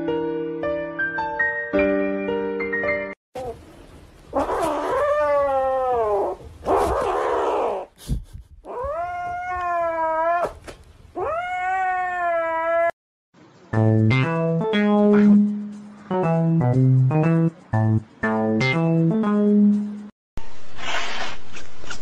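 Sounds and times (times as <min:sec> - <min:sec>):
kitten meowing: 0:11.2 - 0:12.9.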